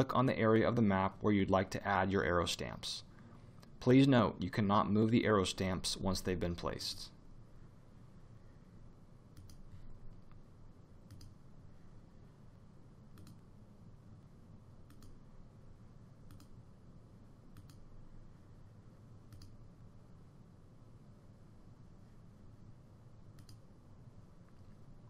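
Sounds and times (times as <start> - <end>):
faint low room hum: 0.0 - 25.0
computer mouse clicking: 9.3 - 10.4, 11.0 - 11.4, 13.1 - 13.4, 14.8 - 15.2, 16.3 - 16.6, 17.5 - 17.8, 19.3 - 19.6, 23.3 - 23.7.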